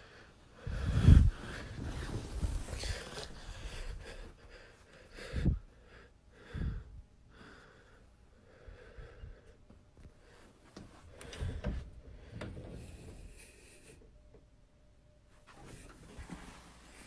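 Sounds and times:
person breathing heavily: 0.0s - 9.6s, 10.2s - 14.0s.

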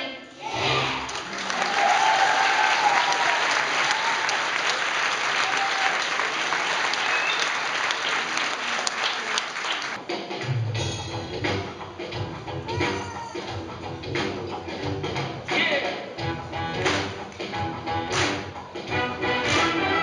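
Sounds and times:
audience applauding: 1.0s - 10.0s
song accompaniment music: 10.0s - 20.0s.

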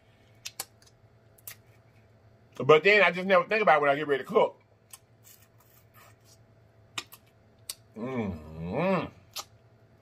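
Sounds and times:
person humming mmm: 7.9s - 9.4s.

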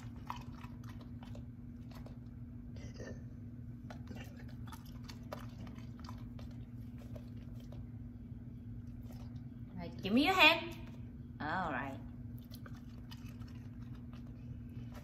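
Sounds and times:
dog chewing with wet smacks: 0.0s - 2.7s, 3.7s - 9.7s, 12.2s - 15.0s
steady low hum: 0.0s - 15.0s.

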